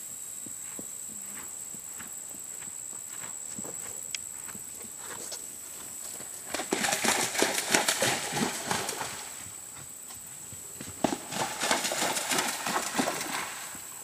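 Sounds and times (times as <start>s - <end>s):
horse hooves pounding: 0.4s - 14.0s
hooves splashing through water: 5.6s - 14.0s.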